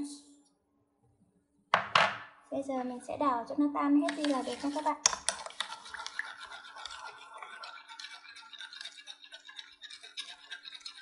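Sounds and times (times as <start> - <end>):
metal spoon stirring in a bowl: 4.0 - 11.0.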